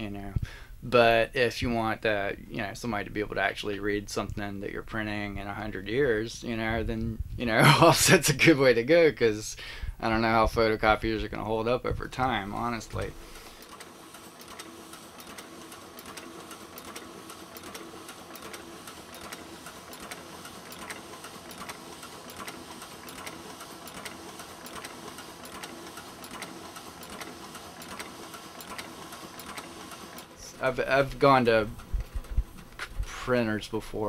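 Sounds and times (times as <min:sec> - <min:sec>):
printing press clattering: 0:12.1 - 0:33.2
cylinders clicking: 0:12.2 - 0:33.2.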